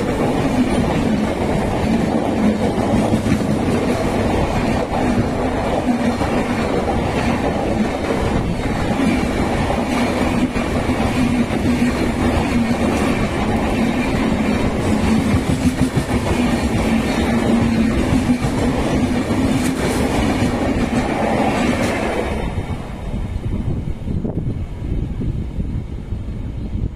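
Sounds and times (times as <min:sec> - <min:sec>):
passing train clickety-clack: 0:00.0 - 0:26.9.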